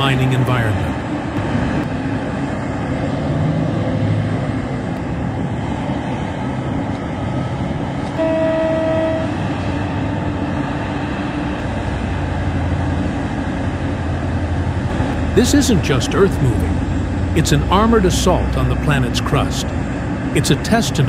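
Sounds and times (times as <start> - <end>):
heavy machinery running: 0.0 - 21.0
horn blast: 8.2 - 9.5.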